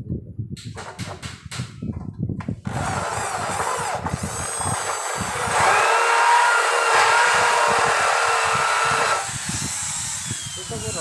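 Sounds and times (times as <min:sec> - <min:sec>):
electric drill whining: 0:02.6 - 0:11.0
drill bit grinding metal: 0:02.7 - 0:11.0.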